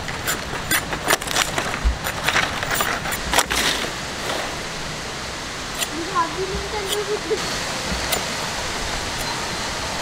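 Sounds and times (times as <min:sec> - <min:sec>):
sickle cutting leaf stalks: 0:00.0 - 0:04.6, 0:05.7 - 0:08.4.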